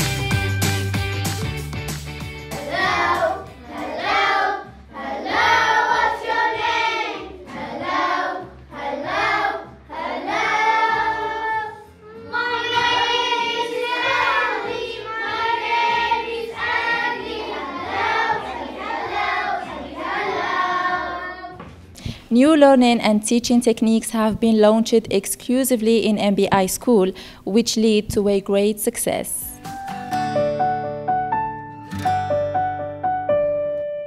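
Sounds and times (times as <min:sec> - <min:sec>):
children singing: 0:02.5 - 0:21.6.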